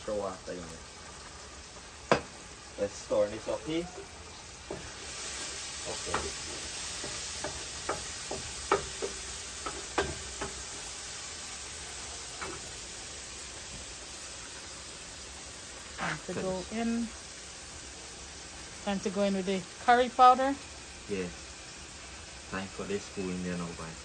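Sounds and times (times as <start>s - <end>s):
curry sizzling in a pan: 0.0s - 24.0s
spoon scraping a pan: 3.9s - 10.8s.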